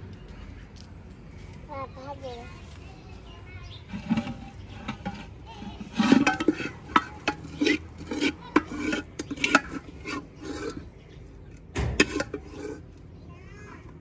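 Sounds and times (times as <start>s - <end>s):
metal ladle scraping pot: 3.7s - 13.0s.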